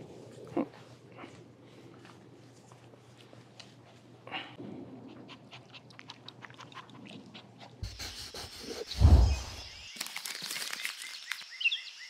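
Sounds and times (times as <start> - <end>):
dog panting: 5.1 - 8.9
low boom with whoosh: 9.0 - 9.6.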